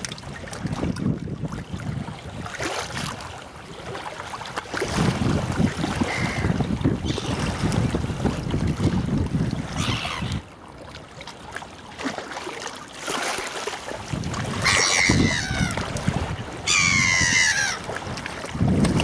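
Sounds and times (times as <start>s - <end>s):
wind gusting on microphone: 0.0s - 3.2s, 4.7s - 10.5s, 14.0s - 19.0s
water lapping: 0.0s - 19.0s
gulls calling: 6.0s - 7.4s, 9.7s - 10.5s, 14.6s - 15.9s, 16.5s - 17.9s.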